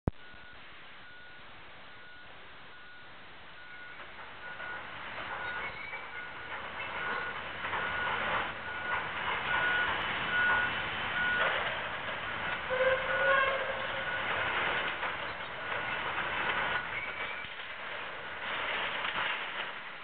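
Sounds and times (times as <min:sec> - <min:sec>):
reversing alarm beeping: 0:00.1 - 0:17.5
scraping and clanking metal: 0:04.0 - 0:20.0.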